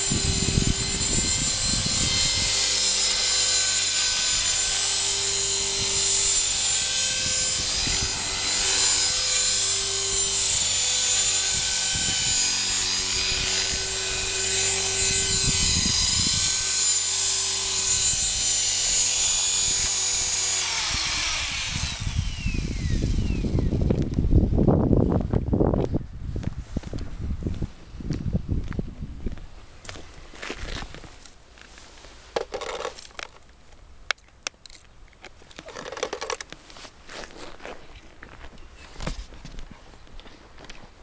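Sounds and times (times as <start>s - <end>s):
rotor buzz: 0.0s - 24.2s
rc helicopter motor whine: 0.0s - 24.3s.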